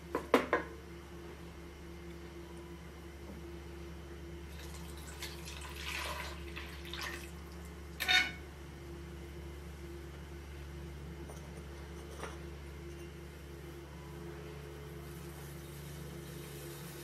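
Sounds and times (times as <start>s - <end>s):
steady low hum: 0.0s - 17.0s
liquid pouring into metal pot: 4.5s - 7.3s.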